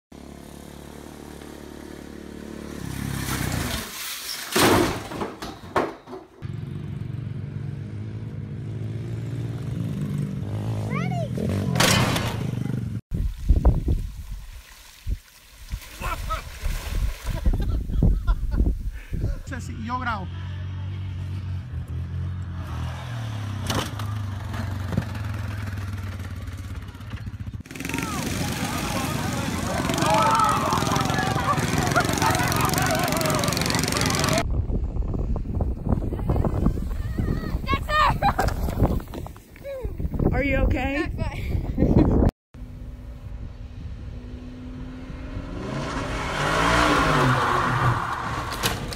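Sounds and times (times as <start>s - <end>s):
dirt bike crashing clatter: 3.4s - 6.4s, 11.8s - 12.6s
motor vehicle engine running: 20.2s - 38.1s.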